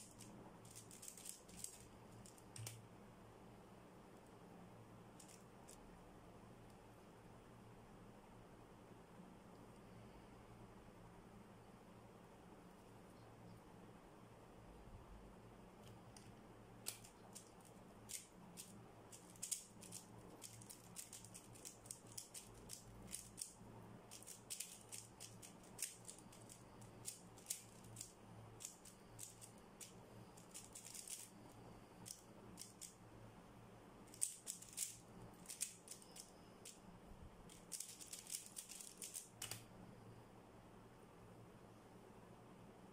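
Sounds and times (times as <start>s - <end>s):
puzzle cube layers clicking: 0.0s - 2.8s, 16.9s - 31.4s, 32.0s - 33.0s, 34.1s - 36.8s, 37.5s - 39.6s.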